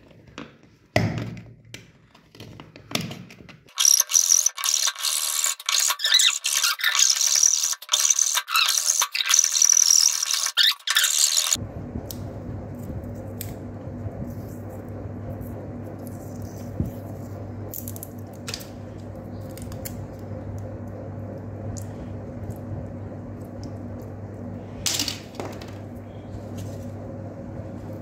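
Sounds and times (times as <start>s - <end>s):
steady low hum: 11.6s - 28.0s.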